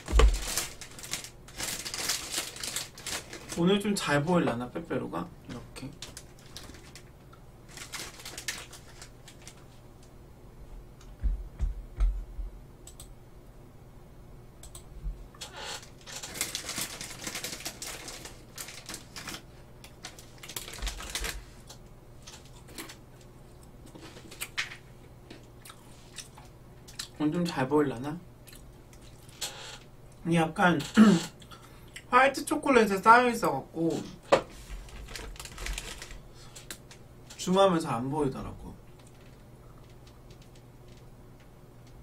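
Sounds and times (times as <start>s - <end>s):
biscuit sticks crunching: 0.0s - 3.6s, 5.8s - 9.6s, 16.0s - 27.2s.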